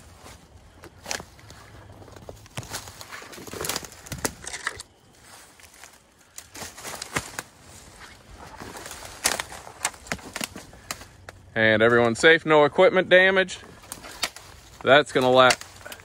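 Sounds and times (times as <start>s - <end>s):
footsteps crunching dry leaves: 0.0s - 11.2s, 13.6s - 16.0s
twigs snapping underfoot: 0.1s - 12.2s, 13.7s - 16.0s.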